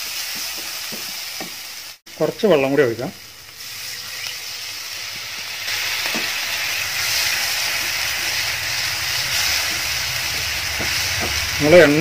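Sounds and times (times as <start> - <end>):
sauce sizzling in a frying pan: 0.0 - 12.0
spatula stirring in a pan: 3.5 - 11.6.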